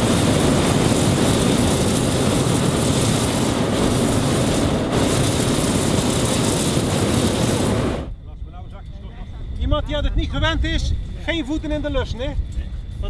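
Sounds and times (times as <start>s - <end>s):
propane burner blast: 0.0s - 8.2s.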